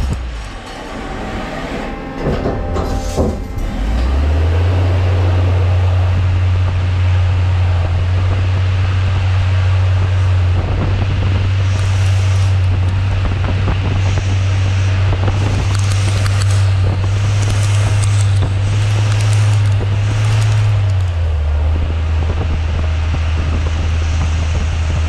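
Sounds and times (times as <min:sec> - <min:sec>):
lathe spindle humming: 0:00.0 - 0:21.6
coolant spray hissing: 0:09.7 - 0:13.1
cutting tool on spinning metal: 0:13.8 - 0:21.2.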